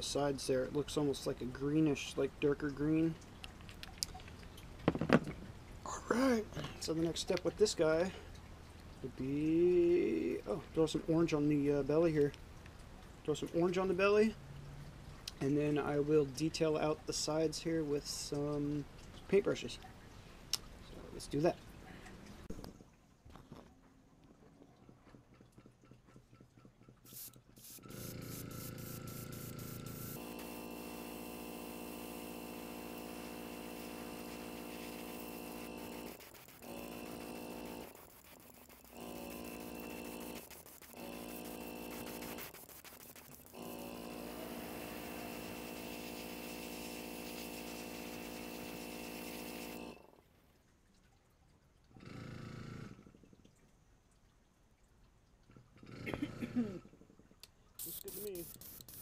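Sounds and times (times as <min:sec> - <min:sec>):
airbrush hissing in pulses: 0:27.1 - 0:50.0, 0:57.8 - 0:59.0
air compressor motor hum: 0:27.1 - 0:50.1.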